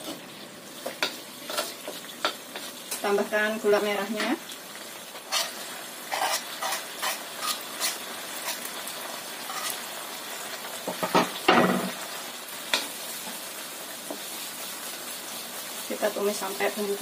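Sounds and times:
sauce sizzling in a wok: 0:00.0 - 0:17.0
spatula scraping and tapping wok: 0:00.8 - 0:03.2, 0:05.2 - 0:09.9, 0:10.8 - 0:12.0, 0:12.7 - 0:14.4.

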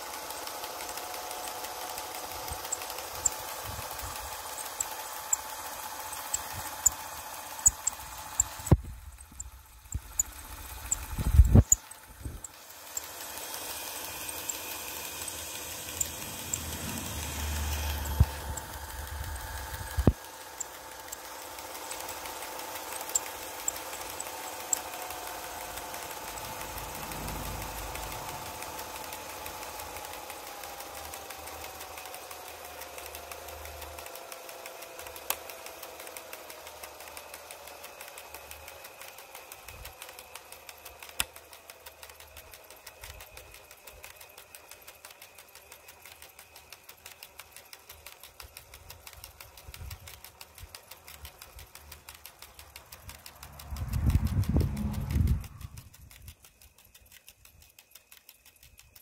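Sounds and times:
electric motor whine falling in pitch: 0:00.0 - 0:33.1, 0:53.0 - 0:56.4
fast mechanical ticking: 0:00.0 - 0:59.0
sharp clicks: 0:00.0 - 0:59.0.

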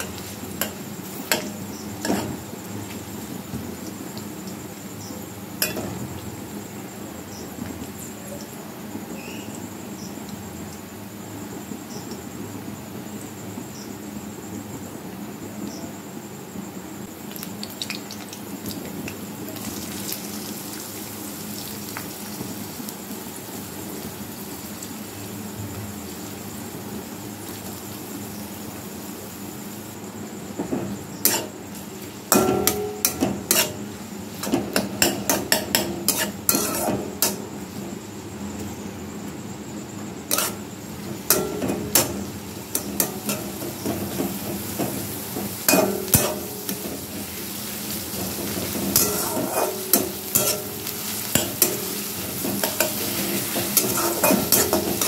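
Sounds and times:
food sizzling in oil: 0:00.0 - 0:10.5, 0:17.2 - 0:38.7, 0:39.6 - 0:55.0
metal spatula scraping a pan: 0:31.2 - 0:37.4, 0:40.3 - 0:44.8, 0:45.7 - 0:47.2, 0:48.1 - 0:55.0.

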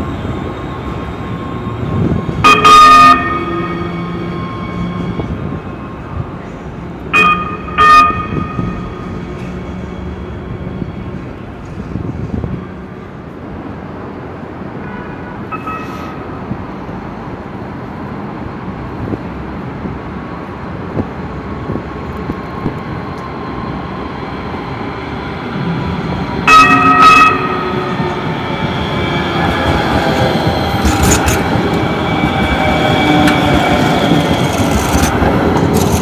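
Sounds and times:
light rail car rolling: 0:00.0 - 0:36.0
train horn blasts: 0:02.2 - 0:05.5, 0:07.1 - 0:09.9, 0:26.4 - 0:28.2.

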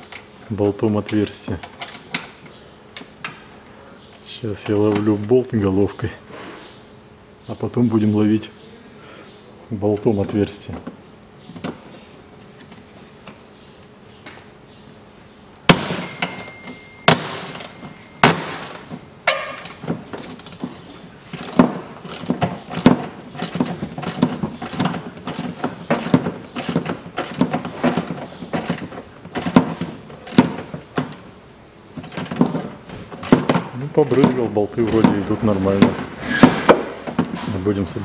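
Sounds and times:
sharp metal knocks: 0:15.7 - 0:19.8.

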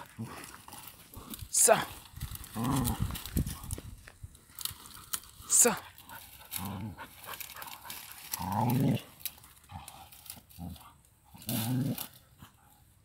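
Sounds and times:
rustling dry grass: 0:00.0 - 0:13.0
dog growling: 0:02.4 - 0:03.3, 0:06.4 - 0:12.6.

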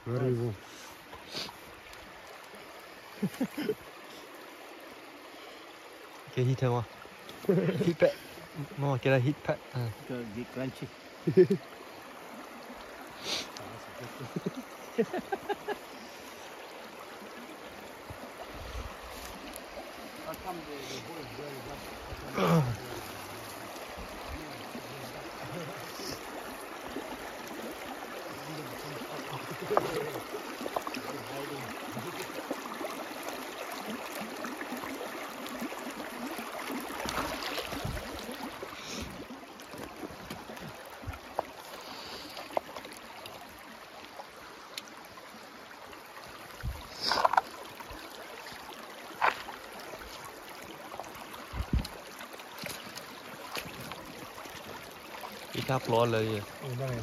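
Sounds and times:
creek running over stones: 0:00.0 - 0:57.0.

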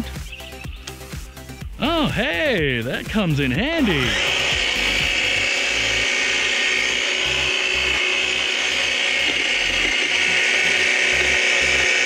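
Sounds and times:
electric hedge trimmer cutting: 0:03.0 - 0:12.0.

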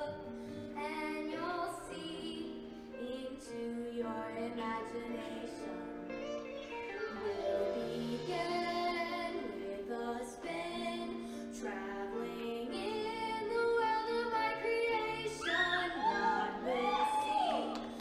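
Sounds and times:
choir singing in harmony: 0:07.1 - 0:18.0.

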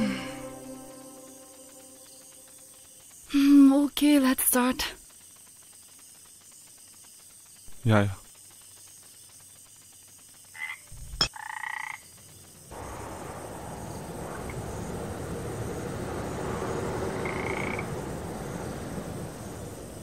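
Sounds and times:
frogs croaking: 0:00.0 - 0:03.4, 0:04.3 - 0:20.0
higher frog call: 0:17.2 - 0:17.9.

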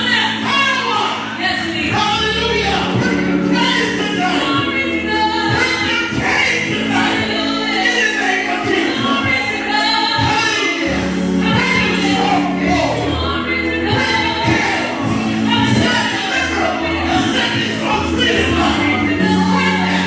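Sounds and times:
choir singing gospel: 0:00.0 - 0:20.0
woman leading singing: 0:00.0 - 0:20.0.

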